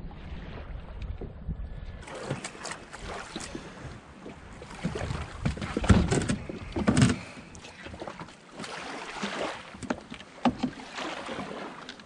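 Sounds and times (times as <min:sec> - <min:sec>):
wind rumbling on microphone: 0:00.0 - 0:07.6
knocks and clunks on kayak: 0:00.4 - 0:12.0.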